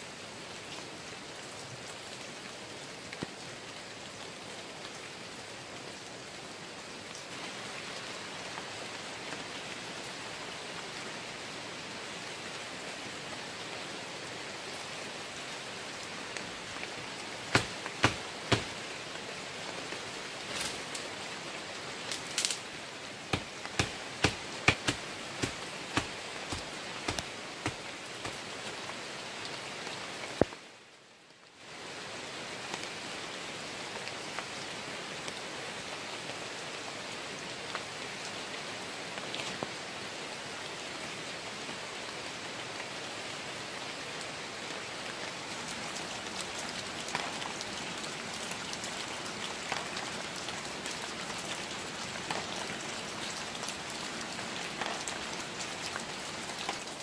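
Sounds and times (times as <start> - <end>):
rain falling on foliage: 0.0 - 57.0.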